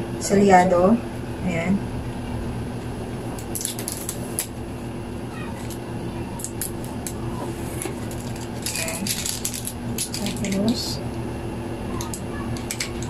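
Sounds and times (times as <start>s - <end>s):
steady low hum: 0.0s - 13.0s
tape peeling with crackling rips: 3.4s - 4.6s.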